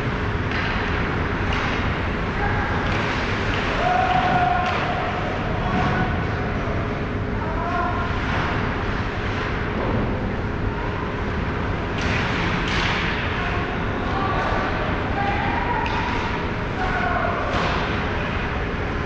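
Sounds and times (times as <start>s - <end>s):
faint hum: 0.0s - 19.0s
distant shouts: 3.5s - 6.3s, 13.3s - 18.2s
steady low rumble: 4.4s - 19.0s.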